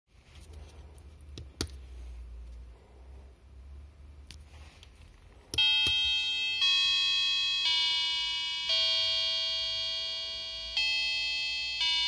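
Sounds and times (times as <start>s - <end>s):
chime playing bell-like notes: 5.6s - 12.0s.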